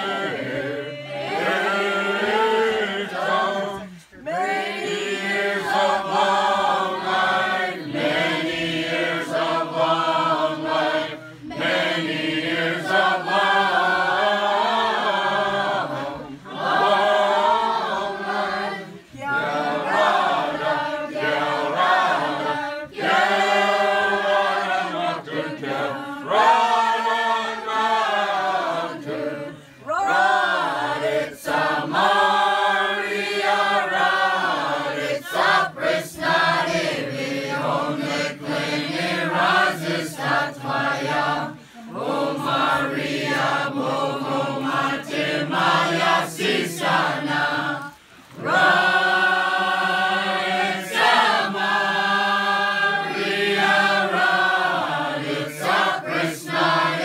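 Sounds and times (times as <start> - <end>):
group singing a carol unaccompanied: 0.0 - 57.0
singers breathing: 29.5 - 29.9, 41.6 - 41.9, 47.9 - 48.4.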